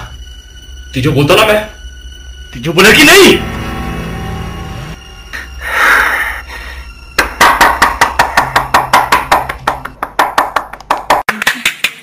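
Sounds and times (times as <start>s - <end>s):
fast percussion beat: 7.3s - 12.0s.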